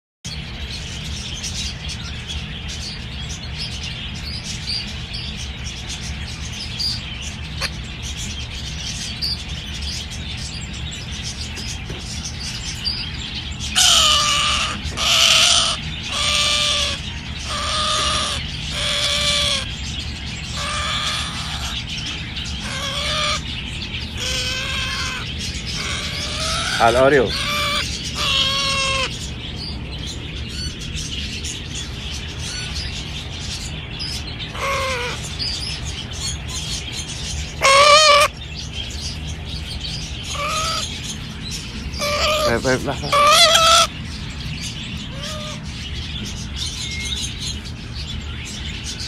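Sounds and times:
steady low hum: 0.3 - 49.0
parrot calling loudly: 13.6 - 19.8, 20.4 - 29.3, 34.1 - 36.4, 37.5 - 38.4, 40.2 - 41.2, 41.9 - 44.0, 45.0 - 45.7.

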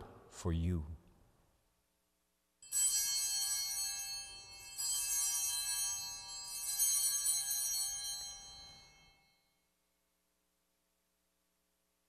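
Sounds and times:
altar bells ringing: 2.6 - 9.6.

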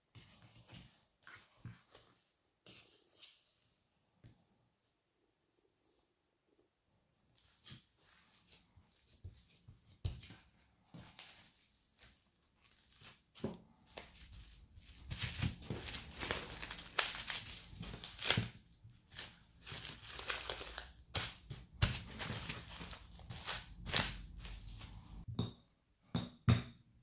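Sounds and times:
plastic wrap crinkling: 11.2 - 25.2.

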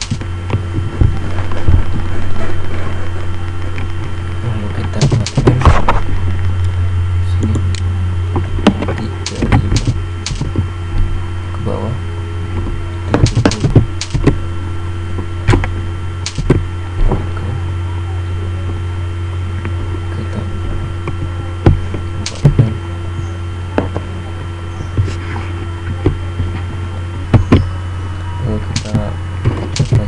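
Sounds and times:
low electrical hum: 0.0 - 30.0
mouse and keyboard clicks: 5.0 - 5.5, 9.2 - 10.5, 13.2 - 14.3, 16.3 - 16.6, 29.7 - 30.0.

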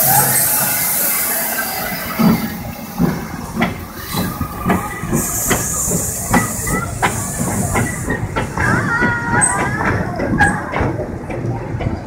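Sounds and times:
loud steam hiss: 0.0 - 9.5
steam locomotive exhaust beats: 0.0 - 12.0.

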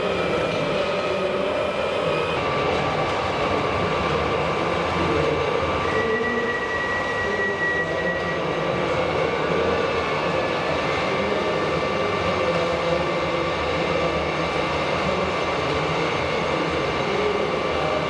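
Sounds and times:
thin high whine: 0.0 - 2.4
mechanical din of busy hall: 0.0 - 18.0.

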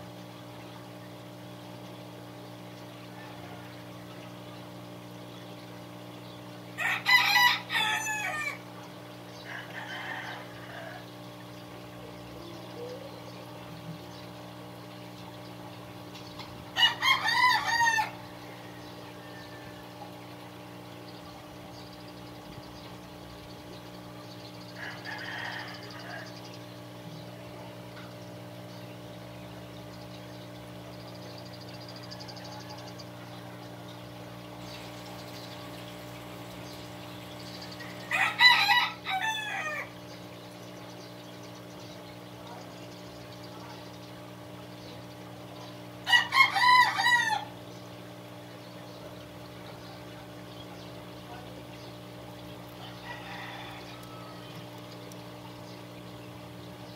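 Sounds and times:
steady low hum: 0.0 - 56.9
rooster crowing: 3.1 - 3.9, 6.8 - 8.7, 9.4 - 11.1, 16.8 - 20.1, 24.8 - 26.4, 32.0 - 33.6, 37.8 - 39.9, 46.0 - 47.6, 52.8 - 54.7.

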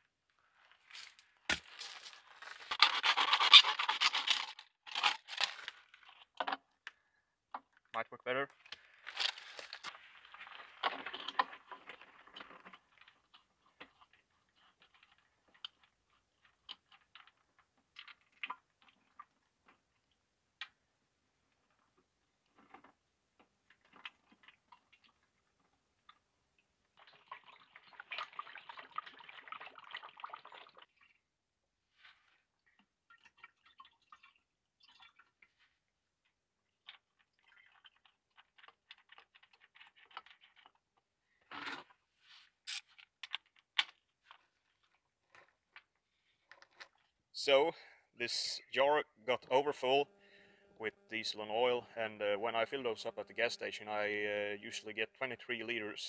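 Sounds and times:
oil pouring through a funnel: 9.0 - 20.1, 23.7 - 31.2, 32.3 - 42.0
faint clicks and drips: 11.3 - 20.8, 23.4 - 31.2, 32.5 - 35.6, 36.2 - 41.1.

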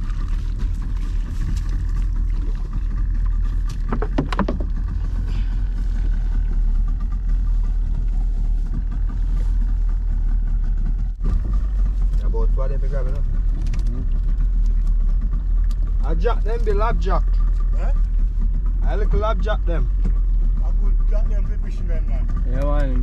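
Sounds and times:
boat engine humming: 0.0 - 23.0
sharp knocks: 3.8 - 4.8.

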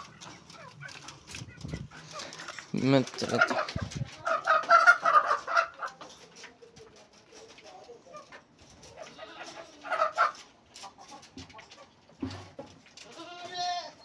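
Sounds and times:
chickens clucking: 0.0 - 14.0
goat bleating: 9.0 - 9.8, 13.0 - 14.0.

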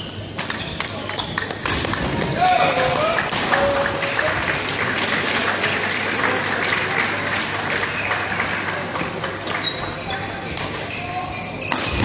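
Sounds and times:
crowd clapping in echoing hall: 0.3 - 9.9.

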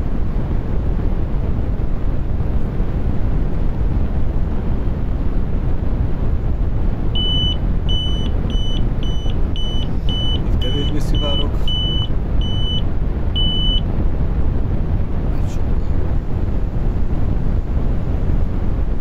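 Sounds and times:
low rushing noise: 0.0 - 19.0
leak detector beeping: 7.2 - 13.9.

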